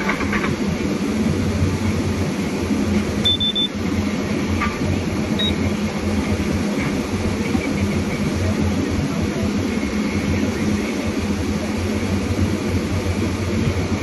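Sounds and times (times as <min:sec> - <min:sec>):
harvester engine hum: 0:00.0 - 0:14.0
short high electronic beeps: 0:03.2 - 0:03.7, 0:05.4 - 0:05.6.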